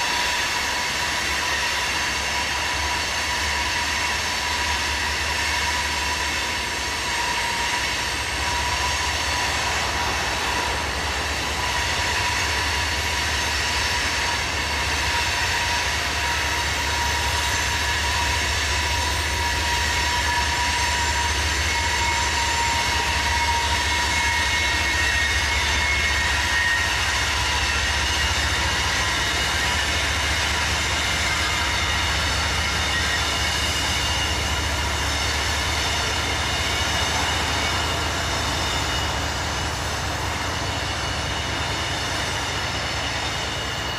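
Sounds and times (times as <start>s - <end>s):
wheel flanges squealing on rail: 0.0s - 43.9s.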